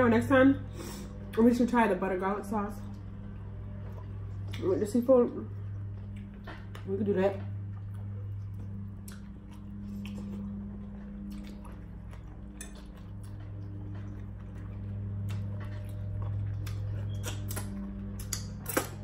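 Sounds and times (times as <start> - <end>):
steady low hum: 0.0 - 19.0
chewing: 5.5 - 19.0.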